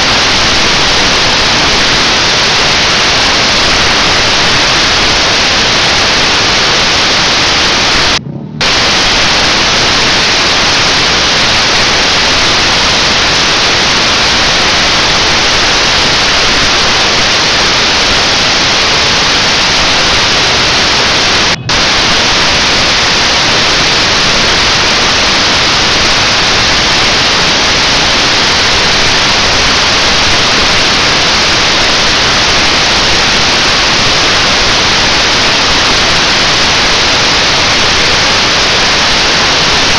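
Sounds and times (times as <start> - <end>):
static-like hiss: 0.0 - 39.9.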